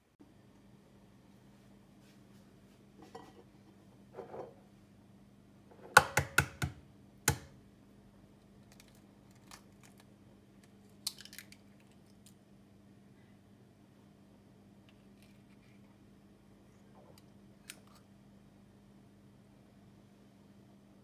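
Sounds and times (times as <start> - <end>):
eggshell crackling: 8.5 - 12.4.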